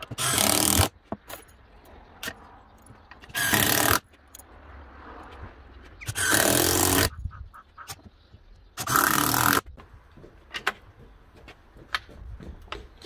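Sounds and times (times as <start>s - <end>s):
drill driving screws into wood: 0.0s - 0.9s, 3.3s - 4.0s, 6.1s - 7.1s, 8.8s - 9.6s
sharp clicks and knocks: 9.6s - 13.0s.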